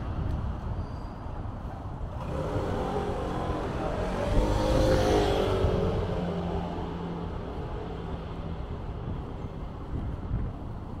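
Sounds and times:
vehicle passing by: 2.1 - 8.6.

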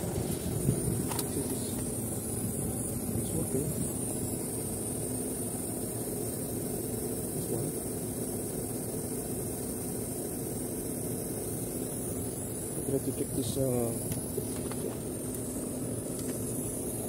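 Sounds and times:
air conditioning unit humming: 0.0 - 17.0.

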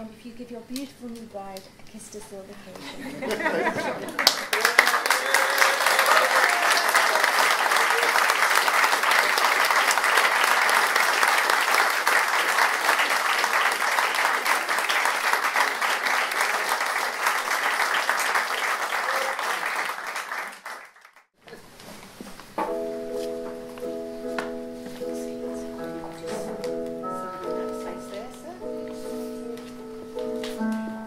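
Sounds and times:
crowd applauding: 3.5 - 21.3.

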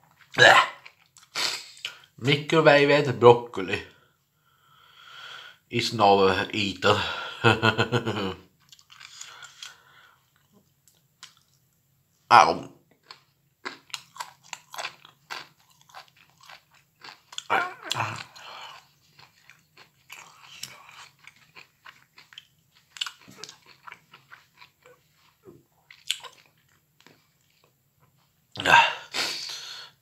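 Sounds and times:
chewing broccoli: 8.6 - 11.6, 13.0 - 28.3.

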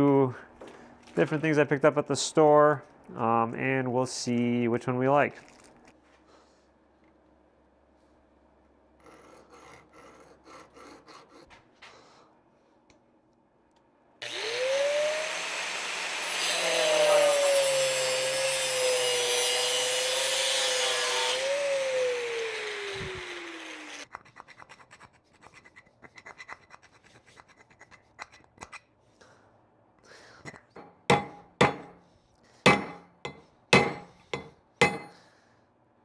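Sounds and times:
angle grinder cutting copper: 14.2 - 24.1, 30.8 - 32.0, 32.7 - 35.2
hacksaw on copper pipe: 30.8 - 32.0, 32.6 - 35.2.

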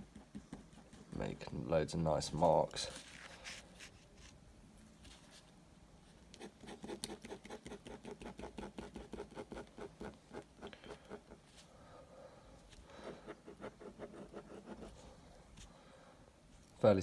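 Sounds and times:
pen scratching on paper: 6.4 - 11.4, 13.0 - 15.0.

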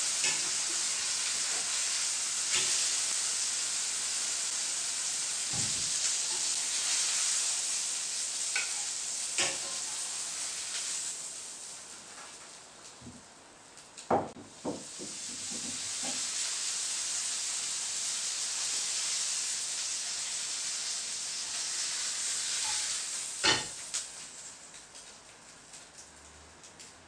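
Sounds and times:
meat sizzling in hot oil: 0.0 - 12.6, 14.5 - 25.0.

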